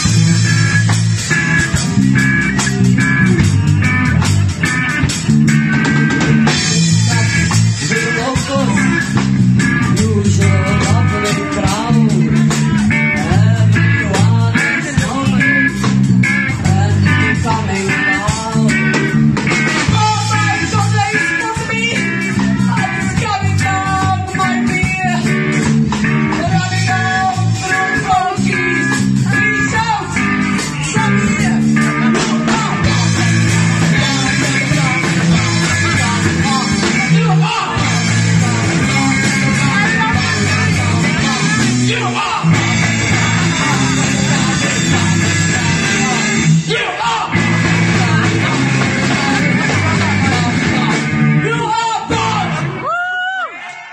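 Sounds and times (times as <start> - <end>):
punk rock song: 0.0 - 53.9.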